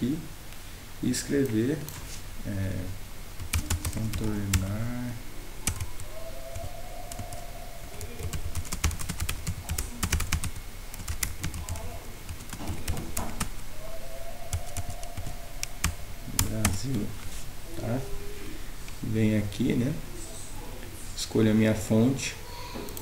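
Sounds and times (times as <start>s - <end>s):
computer keyboard typing: 3.4s - 4.7s, 5.6s - 13.6s, 14.5s - 17.0s.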